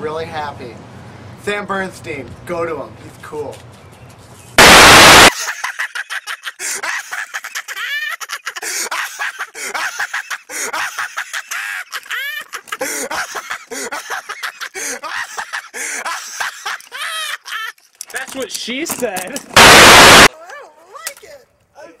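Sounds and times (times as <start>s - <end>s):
burst of static hiss: 4.6s - 5.3s, 19.6s - 20.3s.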